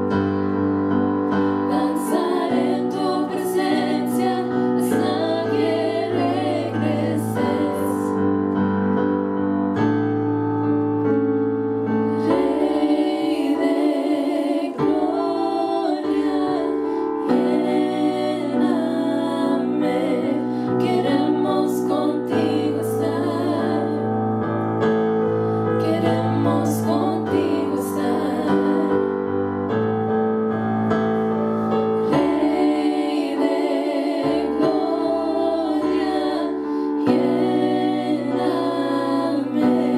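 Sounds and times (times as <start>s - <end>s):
keyboard sustained chords: 0.0s - 39.9s
women singing worship song: 1.3s - 8.3s, 12.1s - 24.2s, 25.6s - 29.4s, 31.6s - 39.9s.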